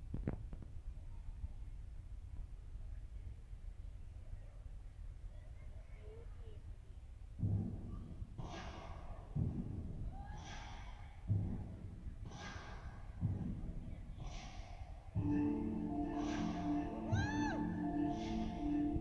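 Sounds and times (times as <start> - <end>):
person breathing slowly: 10.3 - 11.4, 12.2 - 13.2, 14.2 - 19.0
music: 15.2 - 19.0.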